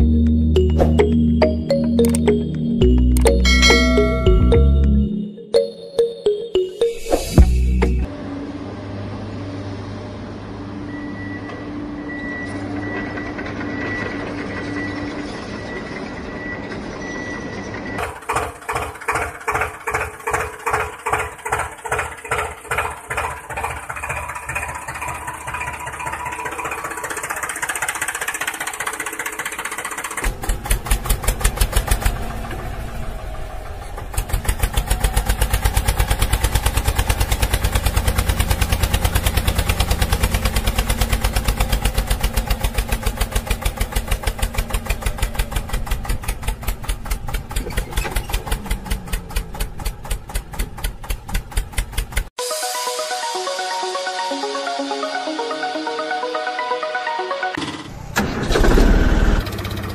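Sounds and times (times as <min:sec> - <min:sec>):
tractor engine chugging: 0:17.6 - 0:52.3.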